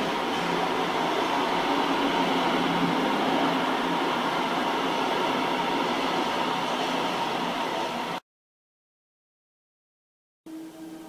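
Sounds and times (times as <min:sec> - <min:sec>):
train wheels rolling on rails: 0:00.0 - 0:08.2.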